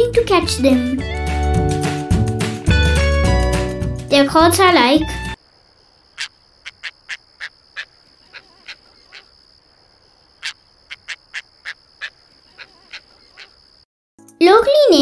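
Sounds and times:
tern calling: 5.3 - 13.8.

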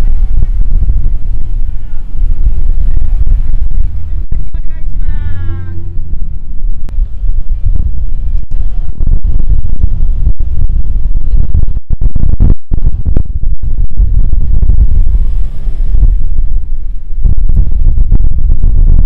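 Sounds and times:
car exhaust rumble driving past: 0.0 - 12.4.

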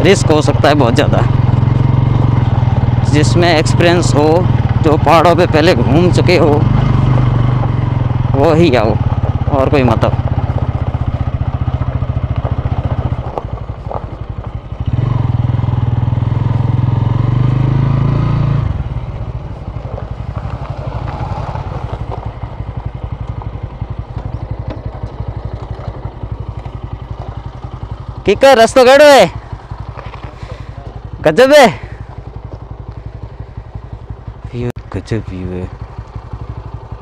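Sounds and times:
motorcycle engine running: 0.0 - 37.0.

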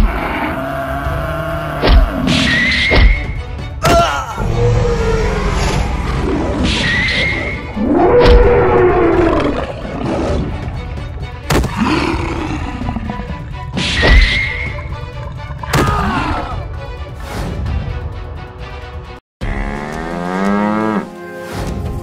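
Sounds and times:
background music: 0.0 - 22.0
animal roars: 7.4 - 10.7, 11.7 - 13.4.

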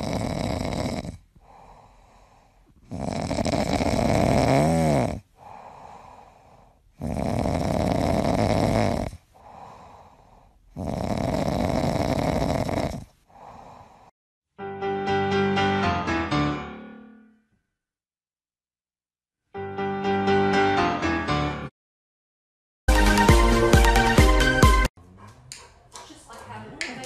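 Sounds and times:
dog snoring: 0.0 - 6.3, 6.9 - 14.1
dog breathing: 0.0 - 14.1.

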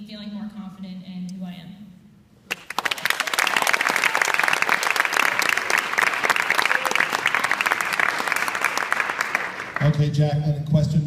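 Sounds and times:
audience applauding: 2.5 - 10.1.

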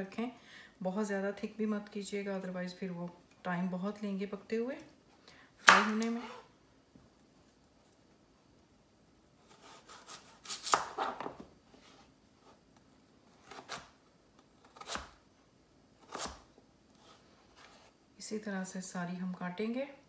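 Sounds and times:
knife cutting potatoes on board: 5.6 - 6.4, 9.4 - 11.4, 14.6 - 15.2, 16.0 - 17.9.

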